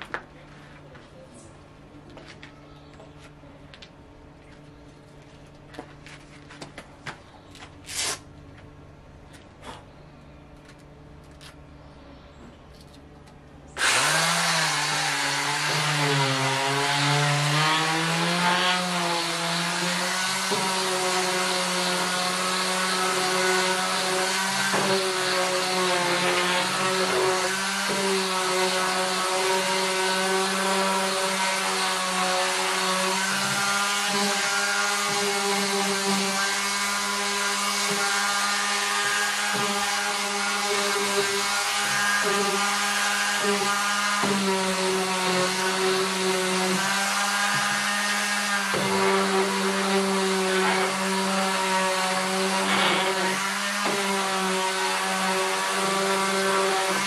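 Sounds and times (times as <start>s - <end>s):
orbital sander sanding wood: 13.8s - 57.0s.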